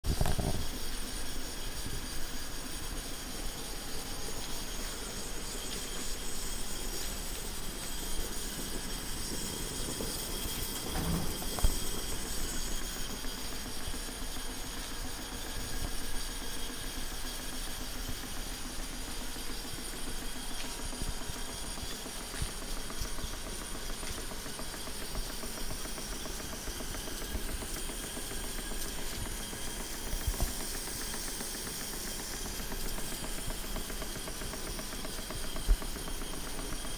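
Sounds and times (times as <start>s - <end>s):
model steam engine chuffing: 0.1s - 36.9s
steam hissing: 0.1s - 36.9s.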